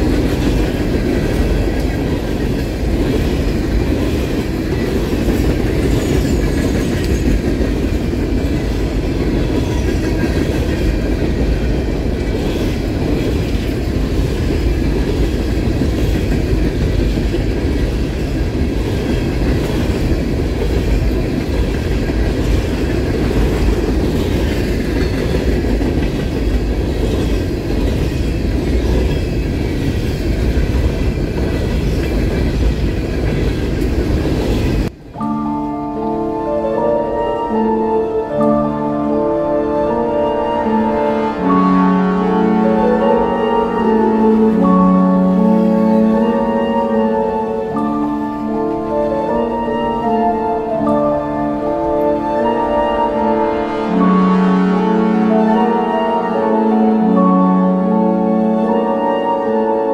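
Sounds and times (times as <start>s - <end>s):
train wheels clattering on rails: 0.0s - 35.2s.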